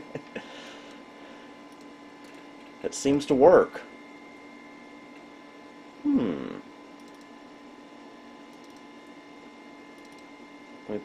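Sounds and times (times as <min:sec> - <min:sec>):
computer electrical hum: 0:00.0 - 0:11.0
man saying hmm: 0:06.0 - 0:06.7.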